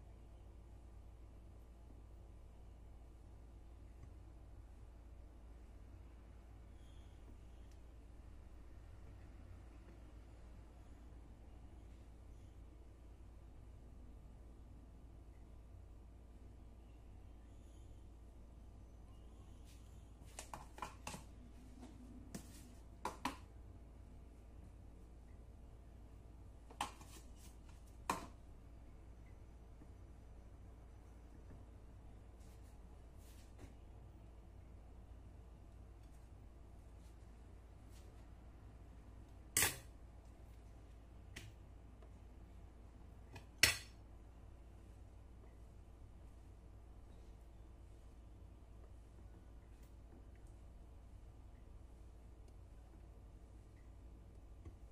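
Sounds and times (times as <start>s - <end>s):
faint low hum: 0.0s - 54.9s.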